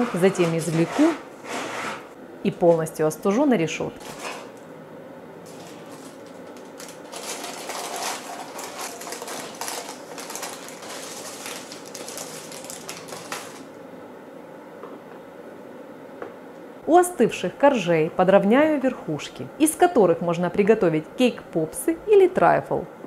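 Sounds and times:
baking paper crinkling: 4.0s - 4.5s, 5.5s - 13.8s.

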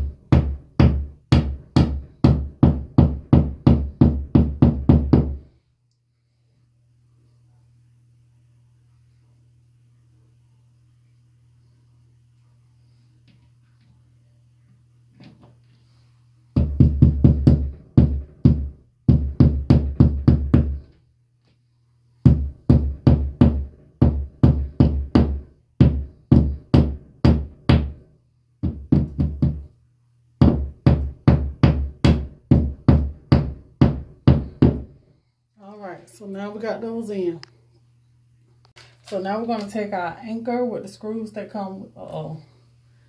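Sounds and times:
hammer tapping wall anchors: 0.0s - 5.4s, 16.6s - 21.0s, 22.2s - 28.0s, 28.6s - 29.7s, 30.4s - 34.9s.

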